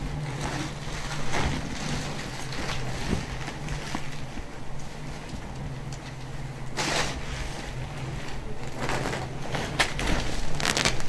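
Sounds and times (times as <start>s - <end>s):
low hum: 0.0s - 11.0s
fabric rustling swishes: 6.7s - 11.0s.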